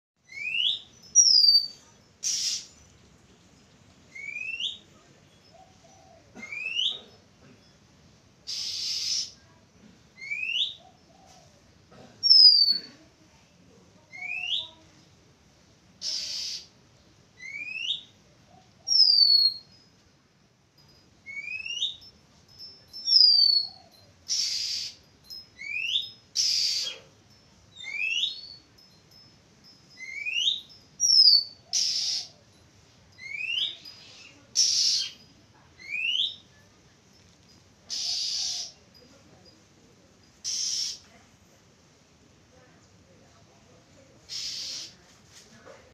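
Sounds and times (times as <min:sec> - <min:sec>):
bird harsh rasping notes: 0:00.4 - 0:02.9, 0:08.4 - 0:09.5, 0:16.0 - 0:16.8, 0:23.0 - 0:27.2, 0:29.9 - 0:32.5, 0:33.2 - 0:36.4, 0:37.9 - 0:38.8, 0:40.3 - 0:41.1, 0:44.2 - 0:45.0
bird whistling call: 0:04.1 - 0:04.8, 0:08.5 - 0:09.4, 0:18.9 - 0:19.6, 0:30.0 - 0:32.4, 0:37.9 - 0:38.8, 0:40.4 - 0:41.0, 0:44.3 - 0:45.0.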